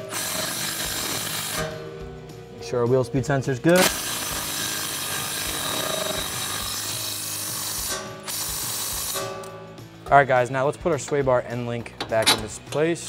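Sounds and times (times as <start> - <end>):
ratchet wrench ratcheting: 0.0 - 1.8, 3.8 - 9.5.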